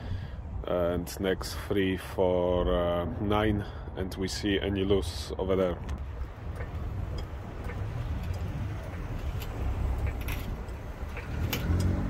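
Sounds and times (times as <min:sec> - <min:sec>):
steady low rumble: 0:00.0 - 0:11.6
trolley jack metallic clicks: 0:06.5 - 0:12.0.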